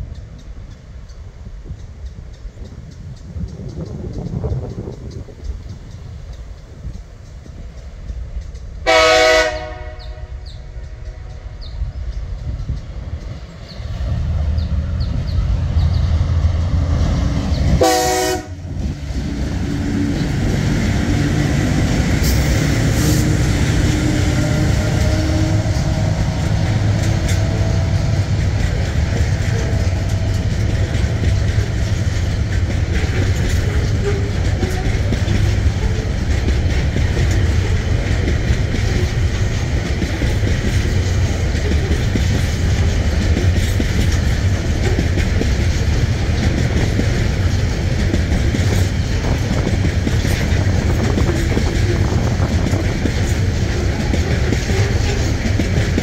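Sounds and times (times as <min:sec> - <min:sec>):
locomotive engine rumble: 0:00.0 - 0:56.0
train wagons rolling on track: 0:00.0 - 0:56.0
train horn blast: 0:08.8 - 0:10.7, 0:17.6 - 0:28.4, 0:32.9 - 0:36.1, 0:53.6 - 0:55.5.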